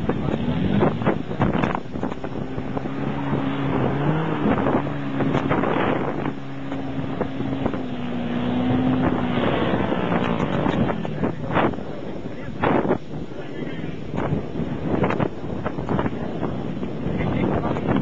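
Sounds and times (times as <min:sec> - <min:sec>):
engine revving under load: 0:00.0 - 0:13.0
wind buffeting microphone: 0:00.0 - 0:18.0.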